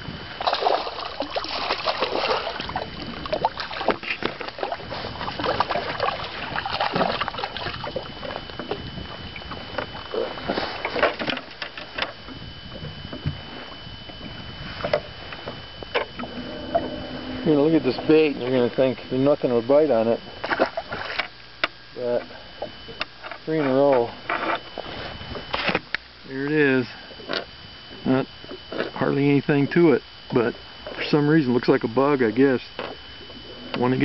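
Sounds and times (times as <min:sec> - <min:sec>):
small waves lapping against boat: 0:00.0 - 0:34.0
wind: 0:00.0 - 0:34.0
faint steady high tone: 0:07.4 - 0:20.3, 0:26.2 - 0:34.0.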